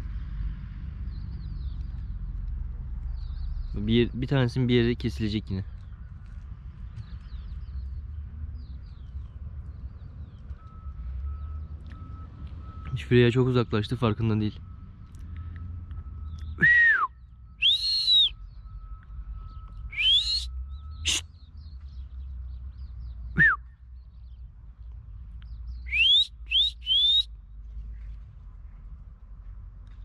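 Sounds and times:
person whistling for dog: 0:16.6 - 0:18.4, 0:19.9 - 0:21.2, 0:23.4 - 0:23.6, 0:25.9 - 0:27.3.

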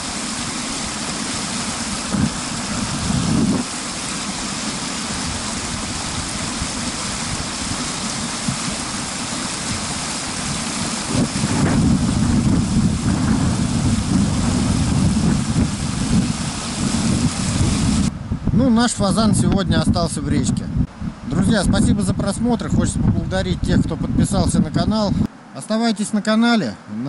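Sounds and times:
outboard engine droning: 0:00.0 - 0:18.3
rush of wind and water: 0:00.0 - 0:25.4.

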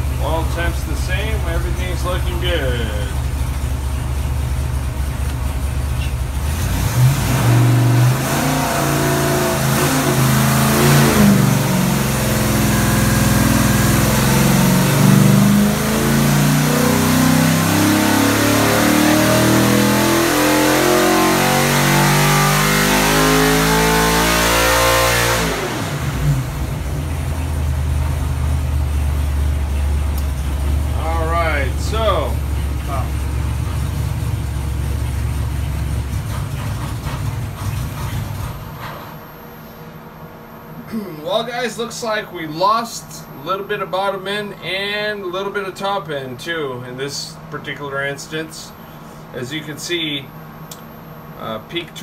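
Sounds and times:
engine revving on dyno: 0:00.0 - 0:40.0.

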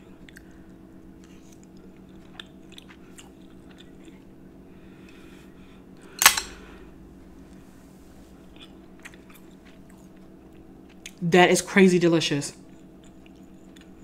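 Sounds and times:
quiet chewing: 0:00.0 - 0:05.4, 0:08.2 - 0:11.2, 0:12.6 - 0:14.0.

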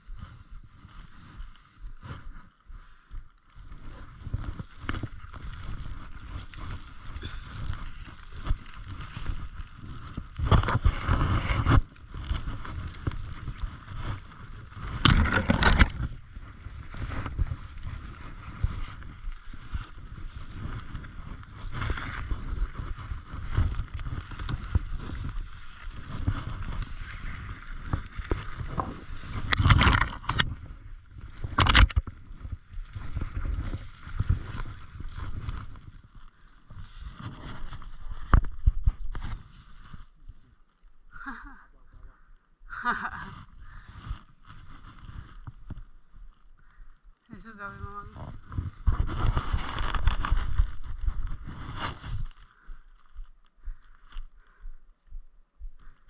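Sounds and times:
snowshoe footsteps crunching snow: 0:03.6 - 0:40.4, 0:47.4 - 0:52.7
branches brushing against clothing: 0:47.3 - 0:53.3.

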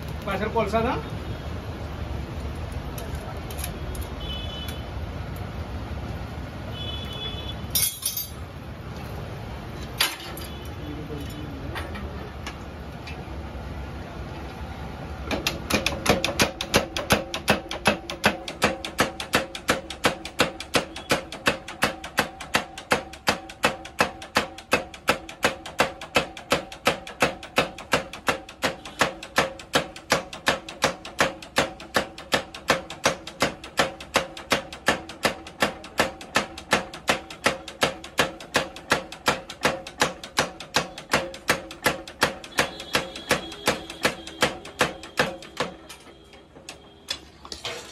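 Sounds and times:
power hammer pounding hot steel: 0:15.2 - 0:46.9.

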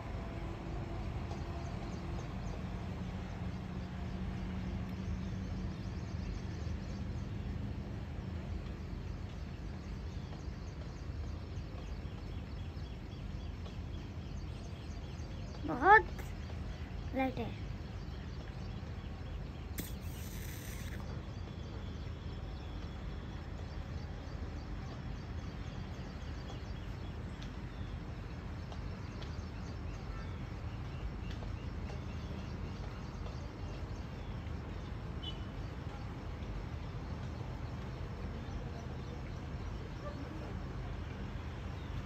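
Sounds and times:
faint bird chirps: 0:19.4 - 0:23.1
brief hiss: 0:19.7 - 0:21.1.

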